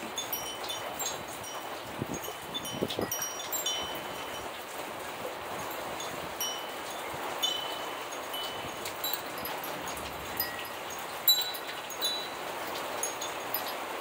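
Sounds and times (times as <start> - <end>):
steady rain falling: 0.0 - 14.0
wind chime ringing: 0.0 - 14.0.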